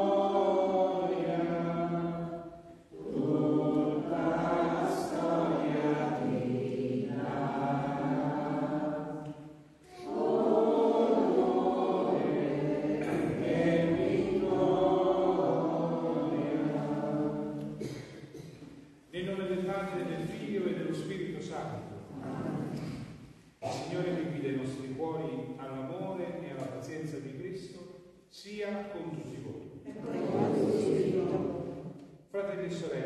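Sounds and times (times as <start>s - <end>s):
group singing a hymn: 0.0s - 18.8s, 29.1s - 32.1s.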